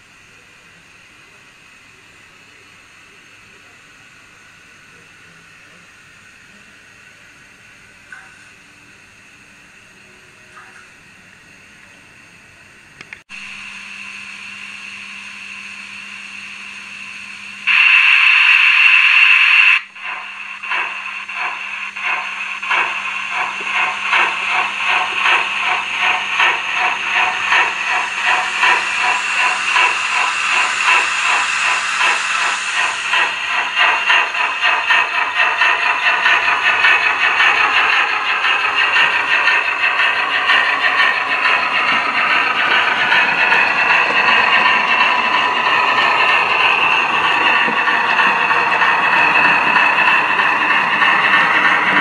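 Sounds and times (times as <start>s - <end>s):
loud steam blast: 13.3s - 52.0s
steam hissing: 13.3s - 52.0s
steam locomotive exhaust chuffs: 13.3s - 52.0s.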